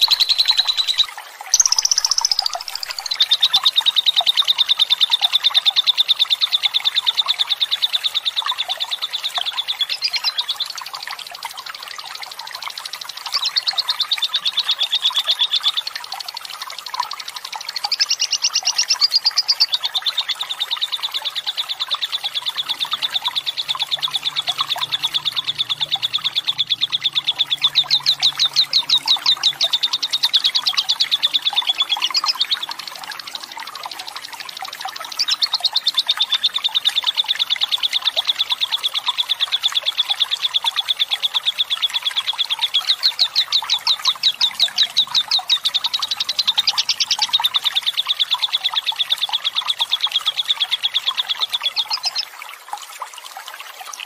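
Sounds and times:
lovebird chattering trill: 0.0 - 4.3, 17.7 - 19.9, 21.8 - 33.2.

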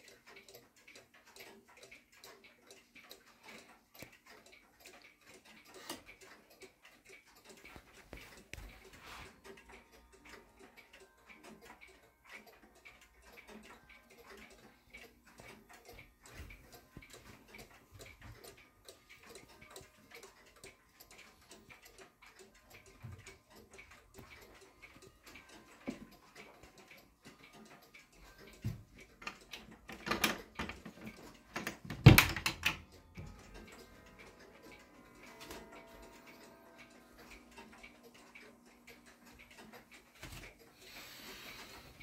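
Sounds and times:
grandfather clock ticking: 0.0 - 42.0
knocks and clicks of clock door latch: 29.2 - 32.9.

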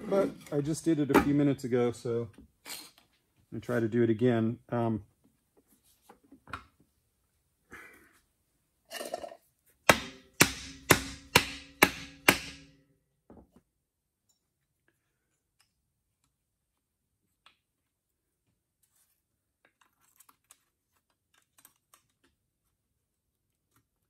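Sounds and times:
handling of parts: 18.8 - 22.8.

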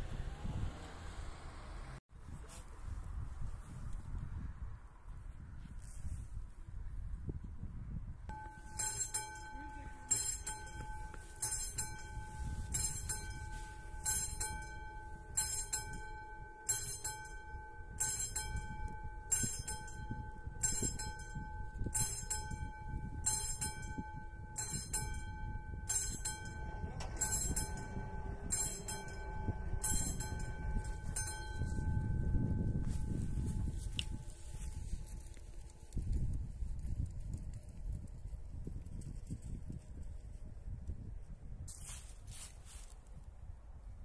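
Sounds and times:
level crossing bell ringing: 8.3 - 34.5.

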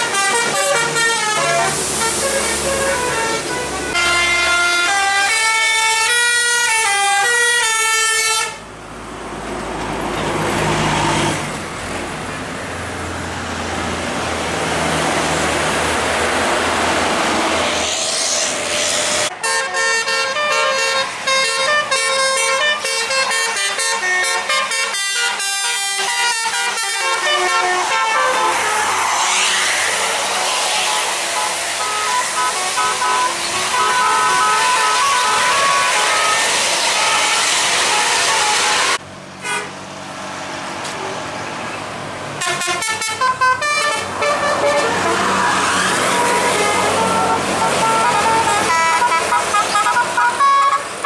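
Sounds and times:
multi-tone musical bus horn: 0.0 - 8.7, 18.8 - 29.8, 30.6 - 39.8, 42.4 - 51.0
bus engine passing: 0.0 - 51.0.

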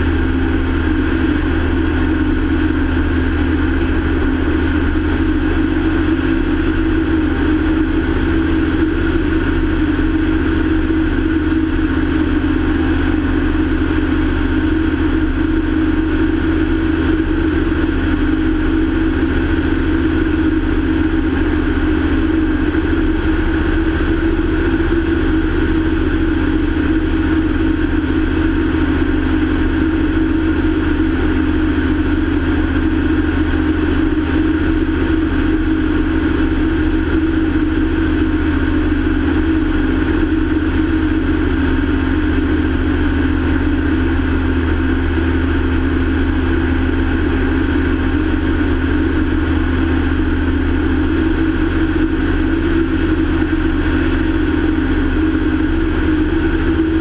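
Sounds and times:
light aircraft engine drone: 0.0 - 57.0.

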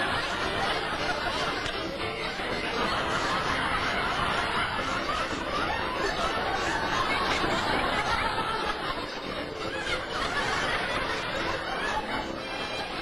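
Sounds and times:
people laughing: 0.0 - 13.0.

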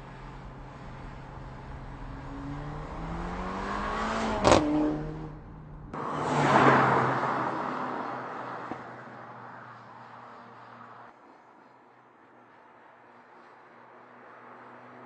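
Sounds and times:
car engine accelerating past: 1.8 - 8.9.

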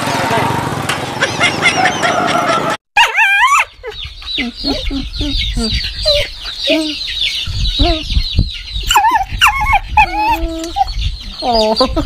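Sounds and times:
dog whining: 1.6 - 7.0, 8.8 - 12.0.

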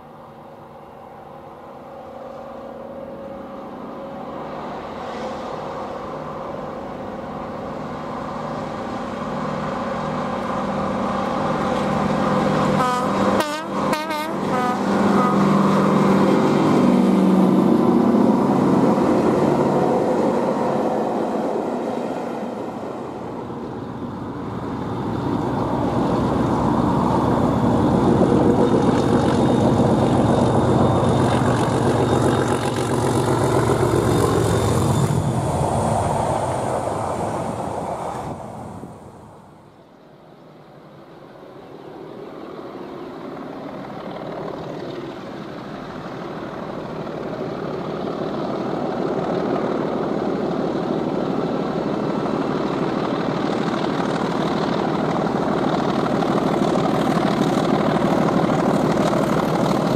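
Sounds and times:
diesel locomotive engine: 0.0 - 59.9
locomotive horn: 12.7 - 15.6.

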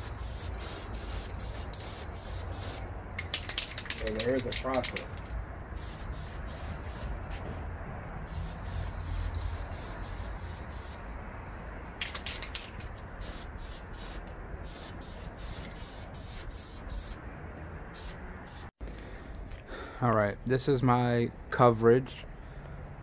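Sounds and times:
spray paint can hissing: 0.0 - 7.2, 8.3 - 11.1, 12.0 - 17.2, 17.9 - 18.8.

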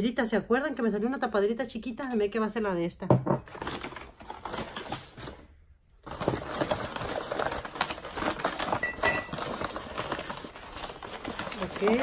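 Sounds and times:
packing material rustling: 3.5 - 12.0.

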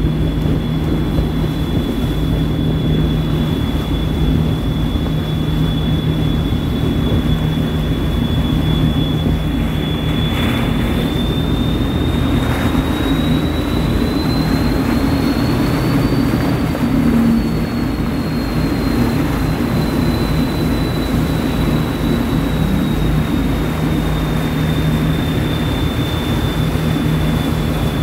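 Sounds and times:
churning wake water: 0.0 - 28.0
ferry engines droning: 0.0 - 28.0
high engine whine: 0.0 - 28.0.

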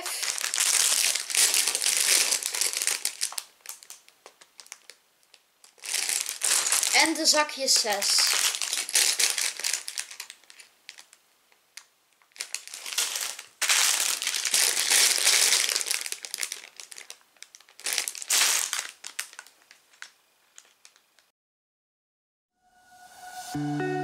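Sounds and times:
plastic bag crinkling: 0.0 - 11.2, 11.8 - 21.3.

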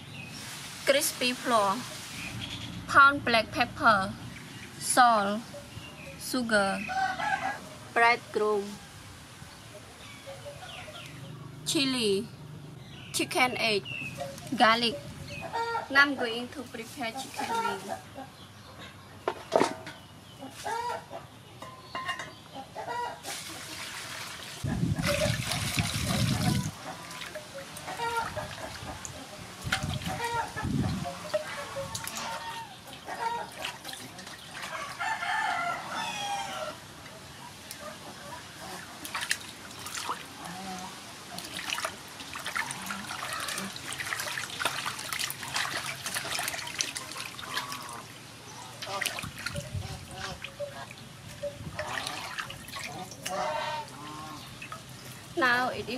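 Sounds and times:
water splashing and trickling: 0.0 - 7.5, 22.8 - 55.9
chickens clucking: 14.1 - 16.2, 17.0 - 19.2, 19.8 - 23.8, 24.6 - 36.4, 45.4 - 54.9
hands sloshing in water: 23.3 - 30.6, 39.0 - 40.4, 41.3 - 48.1, 48.7 - 51.0, 51.8 - 53.4
water pouring into basin: 23.4 - 29.1, 41.4 - 48.1.

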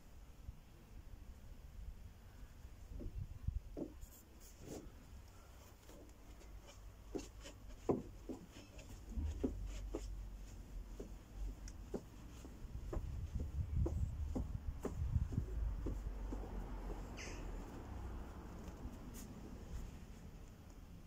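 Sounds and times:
trainers tapping on exercise mat: 11.8 - 17.0.

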